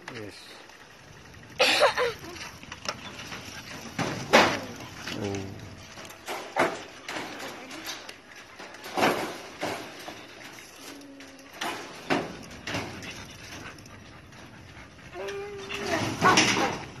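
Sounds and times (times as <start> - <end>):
dog barking: 6.6 - 6.9.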